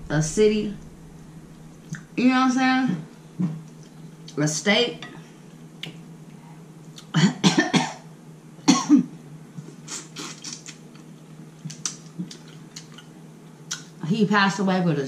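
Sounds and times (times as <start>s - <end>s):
woman coughing: 7.2s - 8.0s, 8.7s - 9.1s
wet mouth clicks and smacks: 11.6s - 13.1s, 13.7s - 13.9s.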